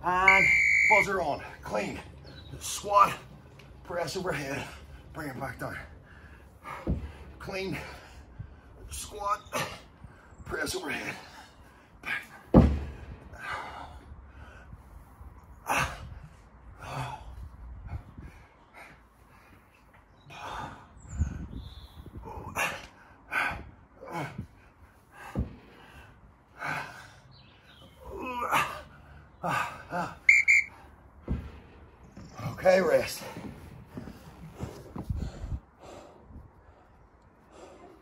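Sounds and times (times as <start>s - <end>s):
man breathing hard: 33.4s - 38.0s.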